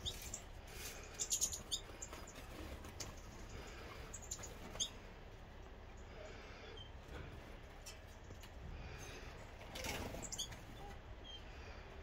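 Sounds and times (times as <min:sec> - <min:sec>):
finches chirping: 0:00.0 - 0:05.1, 0:10.1 - 0:11.8.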